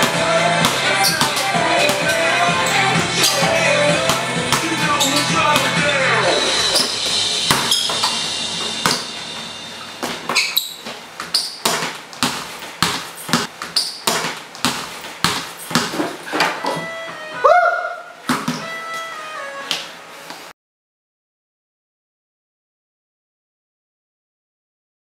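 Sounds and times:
basketball dribbled on tiled floor: 0.0 - 5.8, 6.7 - 9.1, 10.0 - 16.8, 18.3 - 18.7
music: 0.0 - 10.3, 16.4 - 20.5.

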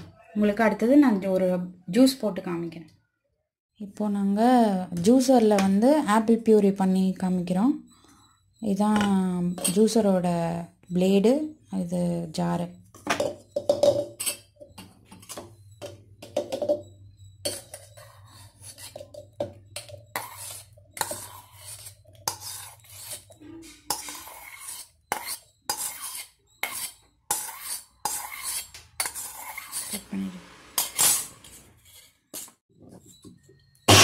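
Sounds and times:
spoon clinking against steel bowl: 8.8 - 10.1, 13.1 - 29.9.

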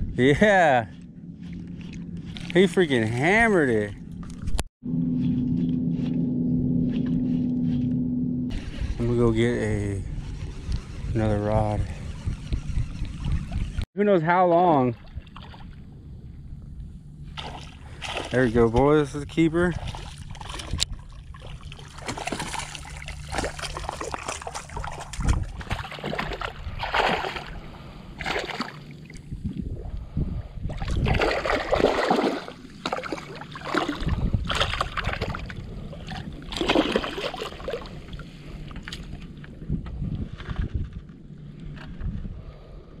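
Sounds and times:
fish thrashing and splashing: 17.3 - 18.5, 19.7 - 29.1, 30.7 - 39.3.

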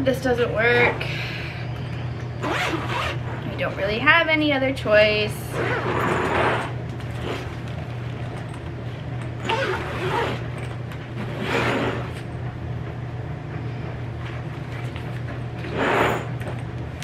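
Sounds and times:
steady low hum: 0.0 - 17.0
zips and fabric handled: 2.4 - 3.5, 5.5 - 7.7, 9.4 - 10.6, 11.2 - 12.3.

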